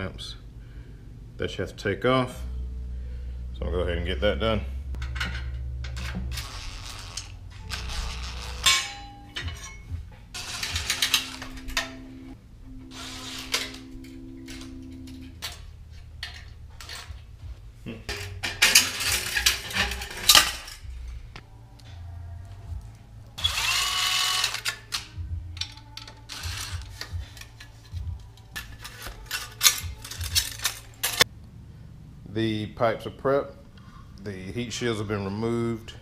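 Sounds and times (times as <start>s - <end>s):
metal parts clanking and rattling: 5.0s - 12.2s, 12.9s - 17.3s, 18.1s - 21.2s, 24.0s - 31.3s.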